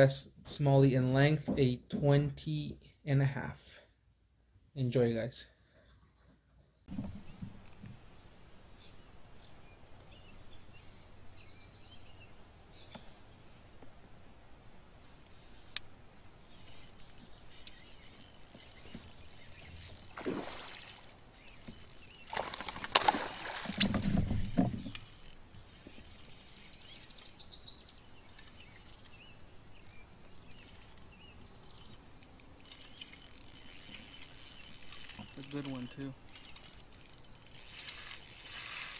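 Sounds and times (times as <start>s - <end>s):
fishing reel winding: 16.8s - 22.3s, 24.8s - 27.0s, 29.8s - 38.9s.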